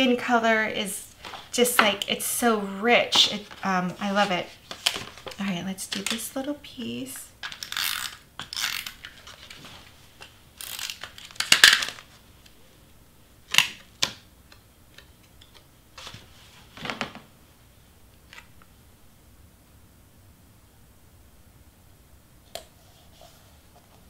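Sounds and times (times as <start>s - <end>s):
cardstock rustling and scraping: 1.2s - 1.9s, 3.0s - 6.2s.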